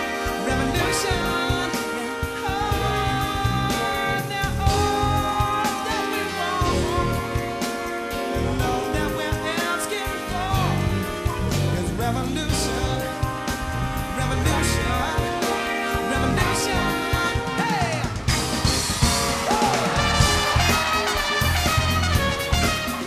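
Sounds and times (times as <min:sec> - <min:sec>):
man singing into a microphone: 0:00.0 - 0:13.4, 0:14.0 - 0:18.2
live band playing: 0:00.0 - 0:23.0.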